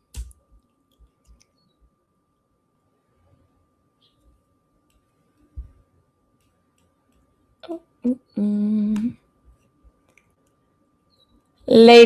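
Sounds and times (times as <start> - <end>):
faint steady tone: 0.0 - 12.0
woman humming: 7.6 - 9.2.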